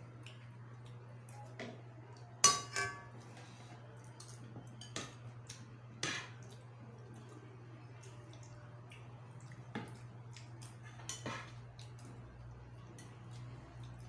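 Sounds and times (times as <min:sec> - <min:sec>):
spoons clinking against bowls: 0:02.4 - 0:03.2, 0:04.2 - 0:05.2.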